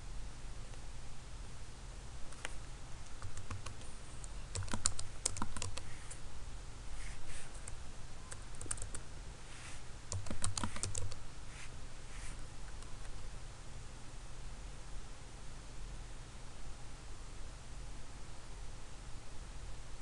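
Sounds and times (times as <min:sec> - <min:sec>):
typing on computer keyboard: 0:02.3 - 0:05.9, 0:07.6 - 0:09.0, 0:10.1 - 0:11.2.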